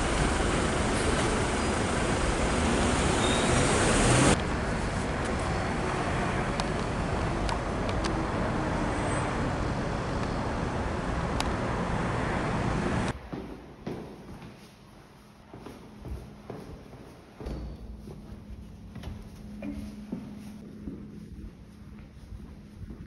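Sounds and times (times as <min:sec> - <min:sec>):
steady rushing outdoor noise: 0:00.0 - 0:13.2.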